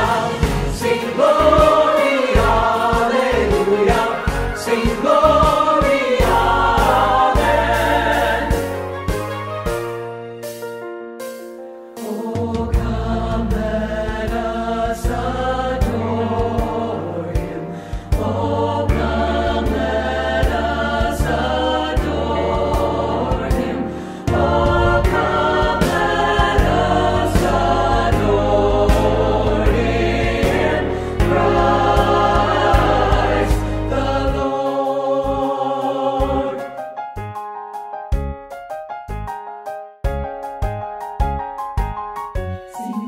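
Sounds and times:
choir singing: 0.0s - 9.2s, 12.0s - 36.8s.

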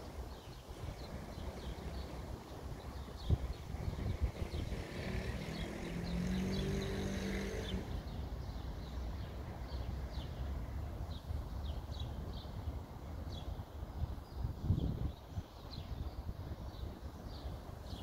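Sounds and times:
low street rumble: 0.0s - 14.4s
small birds chirping: 0.0s - 18.0s.

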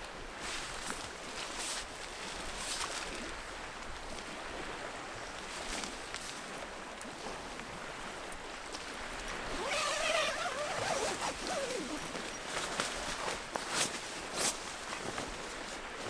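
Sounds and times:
tent fabric rustling: 9.3s - 16.0s
tent zipper unzipping: 9.4s - 12.6s.

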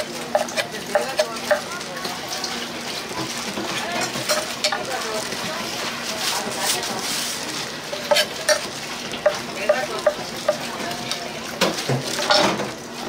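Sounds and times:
food sizzling on griddle: 0.0s - 13.0s
metal utensil clicks and scrapes: 7.9s - 9.4s.

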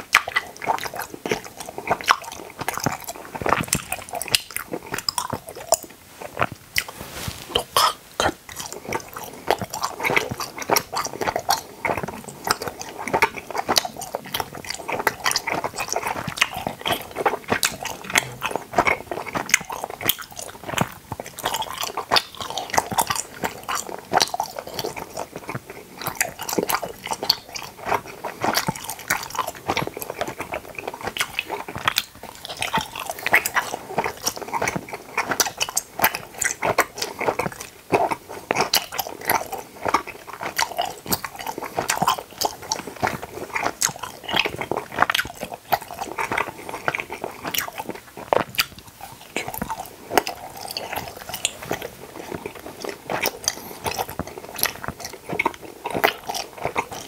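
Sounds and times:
chewing gummy candies: 0.0s - 57.0s.

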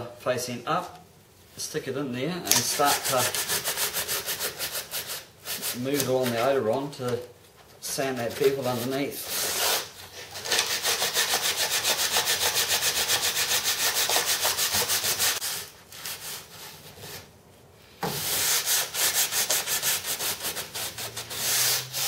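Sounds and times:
sandpaper sanding plastic: 2.5s - 6.5s, 8.2s - 16.6s, 18.2s - 22.0s.

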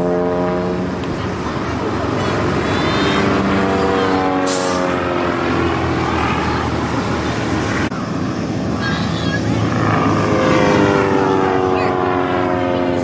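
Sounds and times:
propeller plane engine running hard: 0.0s - 13.0s.

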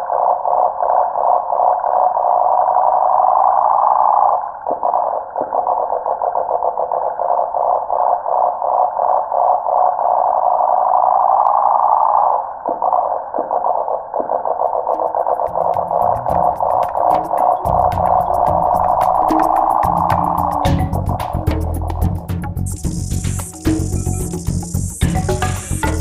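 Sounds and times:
cicada buzzing: 14.9s - 26.0s.

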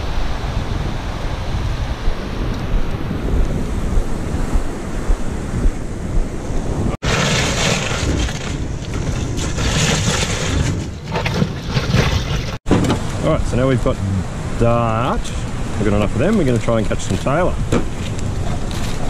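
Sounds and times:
wind buffeting microphone: 0.0s - 11.0s
surf breaking: 6.8s - 14.6s
crushed ice rattling: 7.0s - 12.6s.

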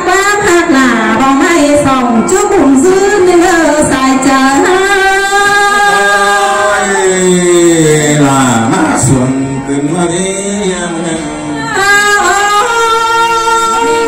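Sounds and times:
lower voice singing: 5.0s - 14.0s.

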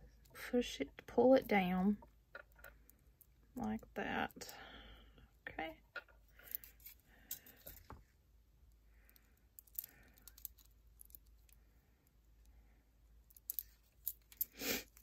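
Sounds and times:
glass beads clicking together: 9.1s - 11.6s, 13.3s - 15.0s.

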